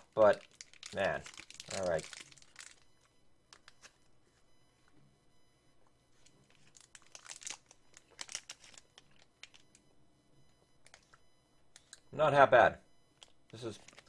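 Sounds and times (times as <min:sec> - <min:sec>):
plastic wrapper crinkling: 0:00.0 - 0:03.9, 0:06.2 - 0:09.8, 0:10.8 - 0:11.2, 0:13.2 - 0:14.0.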